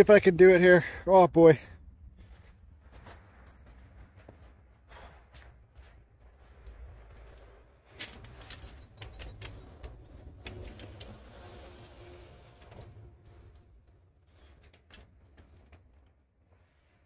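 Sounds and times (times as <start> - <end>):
sharp clicks and knocks: 6.6 - 11.8.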